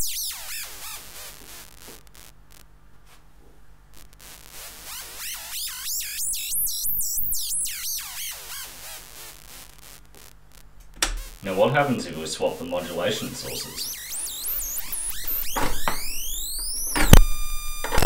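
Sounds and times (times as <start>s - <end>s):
warbling synthesizer tone: 12.8s - 18.0s.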